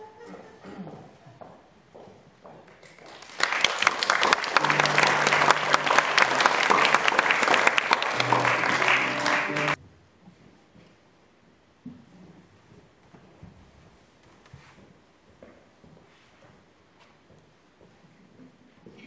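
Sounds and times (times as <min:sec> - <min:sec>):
audience applauding: 0:02.8 - 0:09.8.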